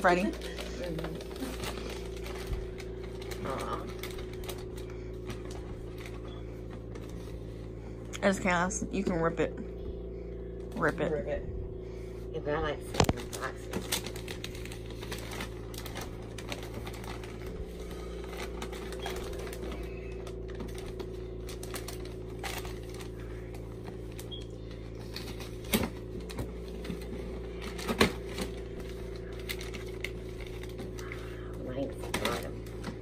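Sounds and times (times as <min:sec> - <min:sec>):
tissue paper rustling: 0:00.0 - 0:07.7, 0:12.9 - 0:31.4.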